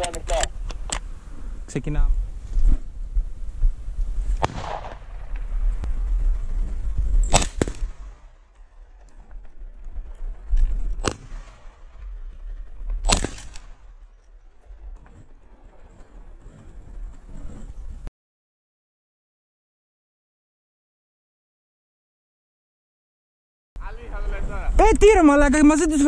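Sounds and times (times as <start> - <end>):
shotgun shots: 4.4 - 5.3, 7.2 - 8.4, 11.0 - 11.9, 13.0 - 13.8.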